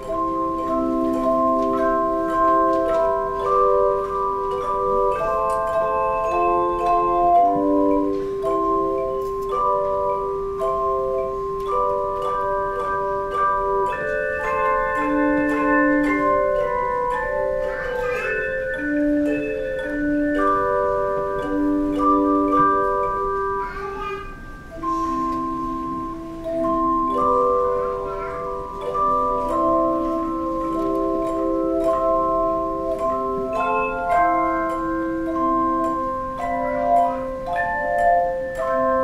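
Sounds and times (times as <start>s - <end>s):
light percussion ticks: 0.0s - 10.8s, 11.6s - 17.2s
instrumental ensemble playing chords: 0.0s - 39.0s.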